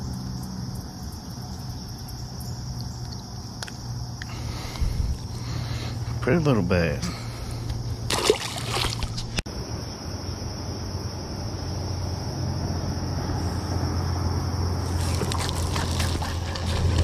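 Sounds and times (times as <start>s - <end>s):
steady low hum: 0.0s - 17.0s
water around boat: 3.0s - 9.4s, 14.8s - 17.0s
fish splashing into water: 8.0s - 9.4s, 14.8s - 17.0s.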